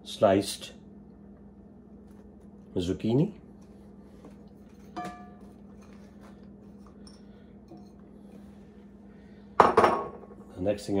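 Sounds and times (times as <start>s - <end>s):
low steady hum: 0.0s - 11.0s
glass bowls clinking: 4.8s - 6.0s.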